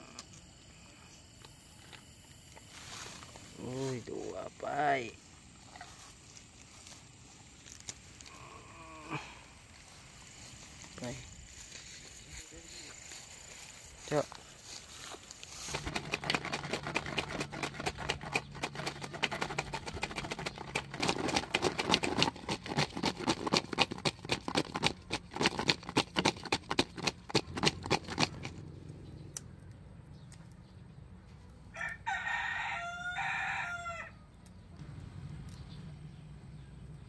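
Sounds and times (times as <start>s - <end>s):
quick clicks and taps: 15.7s - 28.6s
rooster crowing: 31.7s - 34.3s.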